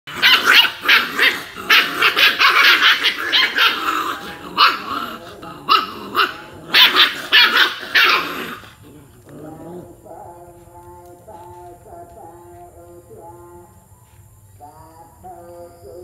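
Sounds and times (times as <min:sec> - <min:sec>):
puppies yapping: 0:00.1 - 0:09.3
puppies growling: 0:00.1 - 0:10.6.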